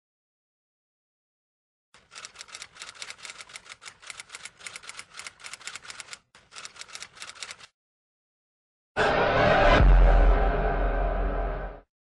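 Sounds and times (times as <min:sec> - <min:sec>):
rapid keyboard typing: 0:02.0 - 0:07.7.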